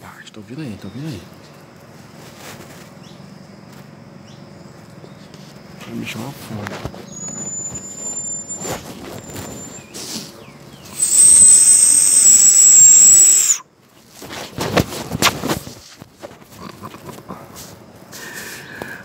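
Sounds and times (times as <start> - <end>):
short rustles: 1.8 - 3.0, 5.2 - 11.0, 13.8 - 18.7
high whistled call: 7.0 - 10.1, 10.8 - 13.7.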